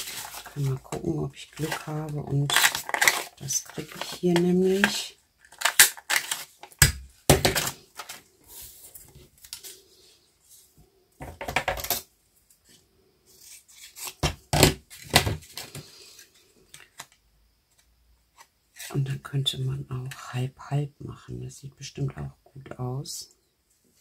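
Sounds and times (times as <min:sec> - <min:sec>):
paper rustling: 0:00.0 - 0:06.8.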